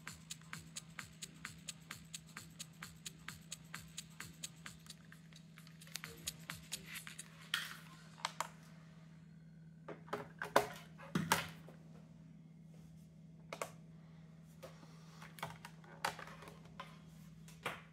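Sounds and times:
steady low hum: 0:00.0 - 0:10.2.

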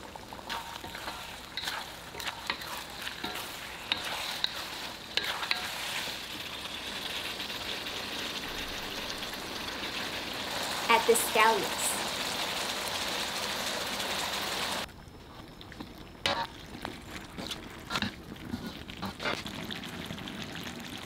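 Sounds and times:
sauce sizzling in a wok: 0:00.0 - 0:21.0
spatula scraping a pan: 0:00.4 - 0:06.9, 0:17.4 - 0:19.4.

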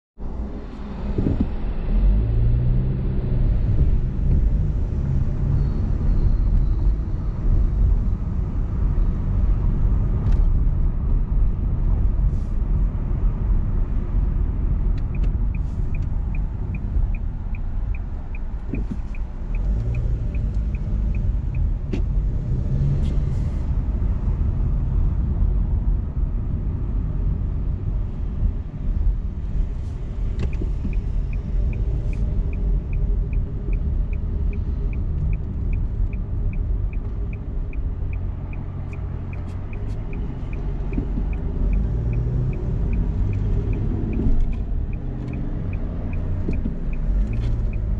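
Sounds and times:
road and engine rumble: 0:00.2 - 0:47.9.

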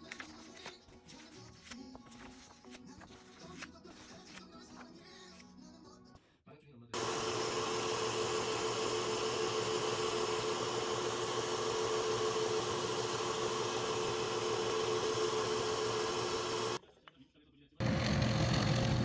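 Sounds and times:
scroll saw cutting wood: 0:07.0 - 0:16.8, 0:17.8 - 0:19.0
steady motor hum: 0:07.0 - 0:16.8, 0:17.8 - 0:19.0.

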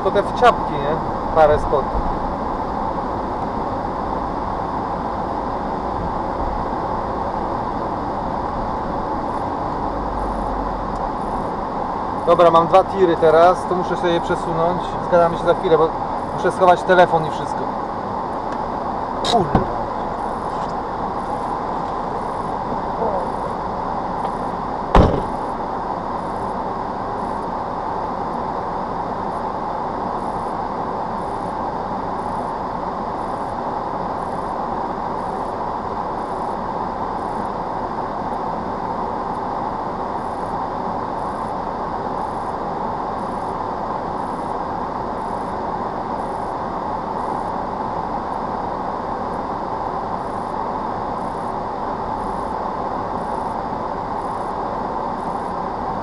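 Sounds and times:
idling vehicle cabin noise: 0:00.0 - 0:56.0.

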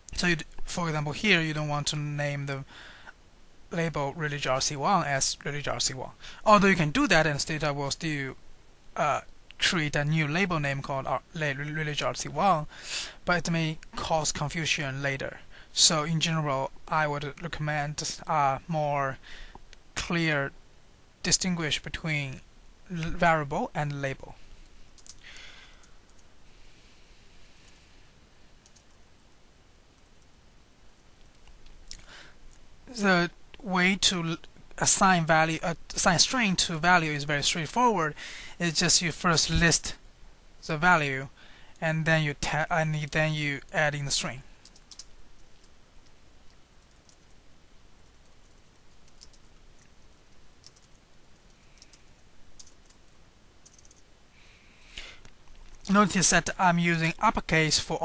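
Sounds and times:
low background hiss: 0:00.0 - 0:58.0
faint keyboard typing: 0:24.6 - 0:26.3, 0:28.6 - 0:29.0, 0:44.6 - 0:47.4, 0:48.0 - 0:54.1.

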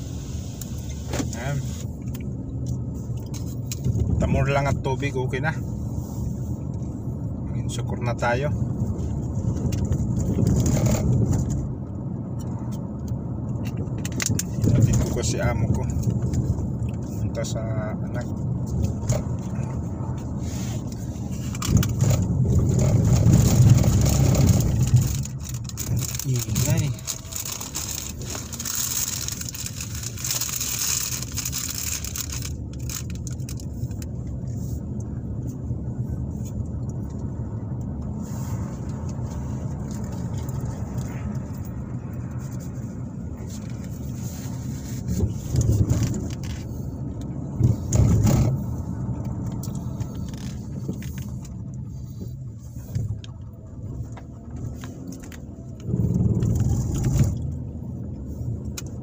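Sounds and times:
engine and tyre rumble: 0:00.0 - 0:59.0
small rattles: 0:20.9 - 0:34.8.

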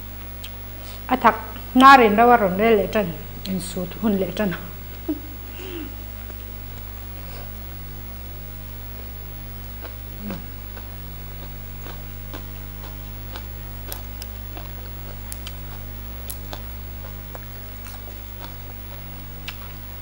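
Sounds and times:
steady low hum: 0:00.0 - 0:20.0
chewing: 0:09.8 - 0:19.9
mouth clicks and snaps: 0:10.2 - 0:18.6, 0:19.4 - 0:19.8
lettuce leaves being torn: 0:10.2 - 0:19.8.

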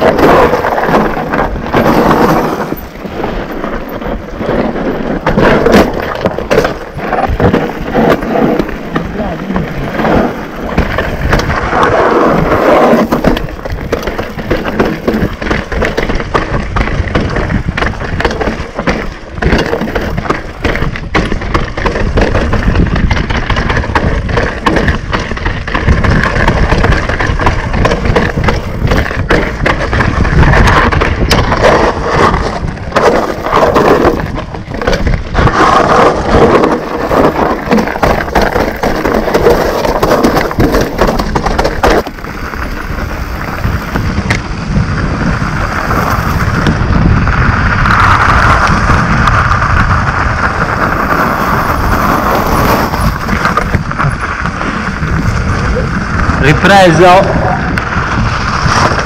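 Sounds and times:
bike rattling and knocking: 0:00.0 - 0:59.0
tyres crunching over stones: 0:00.0 - 0:59.0.

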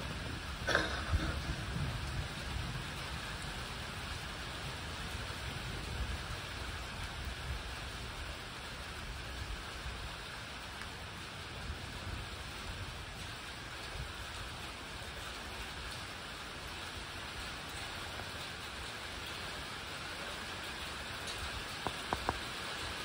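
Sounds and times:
distant thunder rumbling: 0:00.0 - 0:04.4
steady rain falling: 0:00.0 - 0:23.0.

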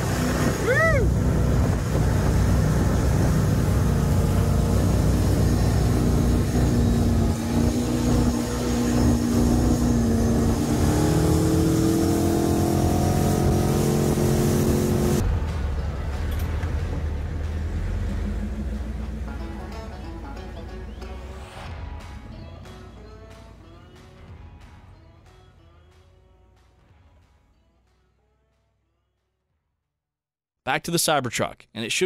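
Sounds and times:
water rushing past: 0:00.0 - 0:19.3
vehicle engine running hard: 0:00.0 - 0:27.9.

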